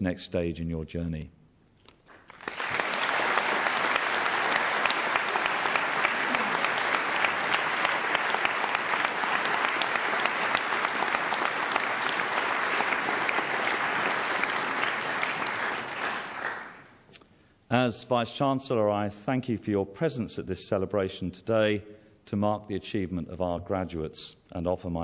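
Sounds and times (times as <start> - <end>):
audience applauding: 2.1 - 17.0.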